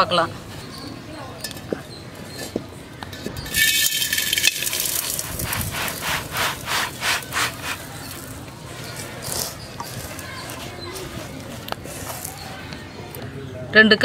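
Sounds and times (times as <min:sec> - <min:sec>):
sand pouring into metal pan: 0:03.5 - 0:08.5
scraping sand in pan: 0:03.5 - 0:12.6
soft rustle of sand: 0:04.6 - 0:12.7.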